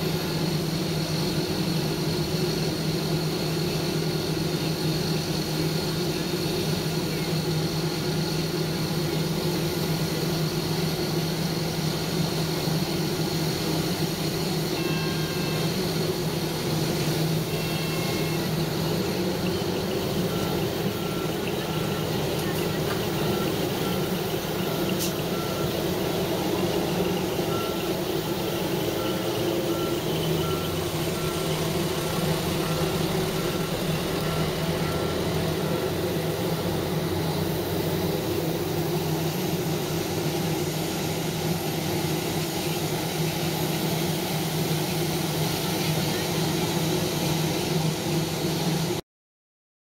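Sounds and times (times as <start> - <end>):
loud engine hum: 0.0 - 49.0
electronic warning beep: 14.7 - 15.8, 17.3 - 36.6.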